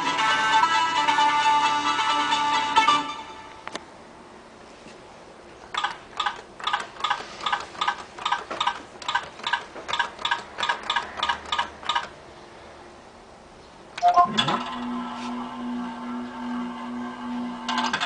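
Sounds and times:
short electronic beeps: 14.0 - 14.6.

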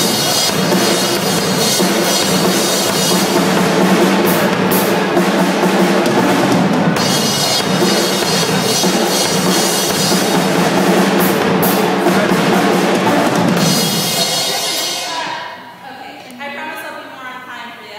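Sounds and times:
bass drum: 0.0 - 15.4
fast loud drumming: 0.0 - 15.6
cymbals crashing: 0.0 - 15.8.

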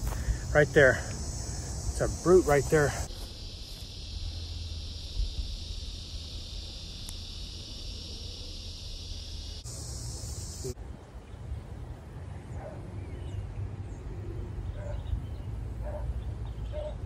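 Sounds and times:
insects buzzing: 0.0 - 10.8.

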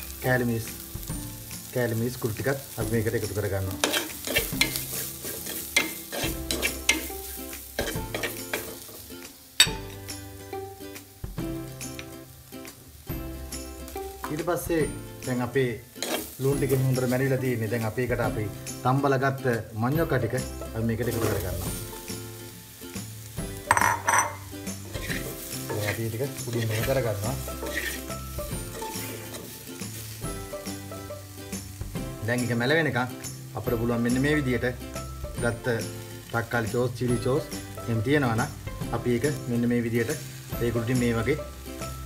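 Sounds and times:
background music with held notes: 0.0 - 42.0
light sizzle of frying: 0.0 - 42.0
spoon striking clay pot: 9.6 - 10.0, 23.6 - 25.1
spatula scraping clay pot: 27.6 - 28.1.

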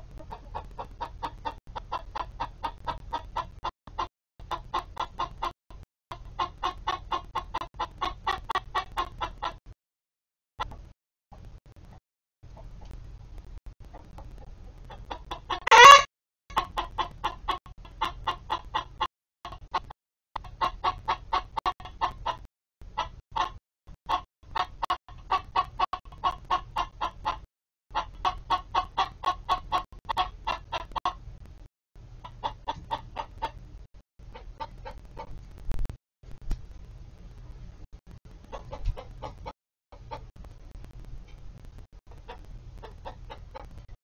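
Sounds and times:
hens clucking: 0.0 - 9.7, 13.8 - 31.3, 32.2 - 35.4, 38.5 - 40.3, 42.1 - 43.9
hen squawk: 15.5 - 16.1.

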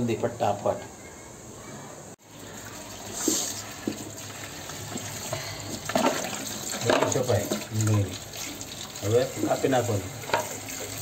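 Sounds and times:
tap water splashing into sink: 3.1 - 5.1, 5.7 - 11.0.

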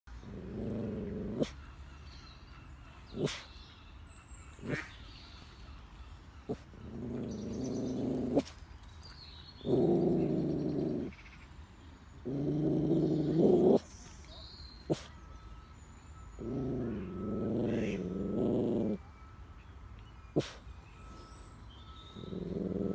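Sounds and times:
puppy growling whines: 0.1 - 1.6, 6.5 - 8.6, 9.6 - 11.2, 12.2 - 14.0, 16.3 - 19.0, 22.0 - 22.9.

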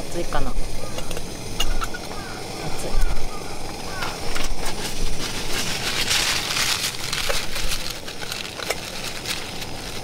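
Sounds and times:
boiling water crackling: 0.0 - 10.0
paper towel crinkling: 4.5 - 10.0.

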